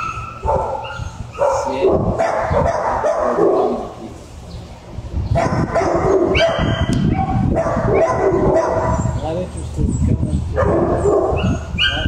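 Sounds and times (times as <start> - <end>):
dogs barking and yipping: 0.0 - 4.0, 5.3 - 9.3, 10.5 - 12.0.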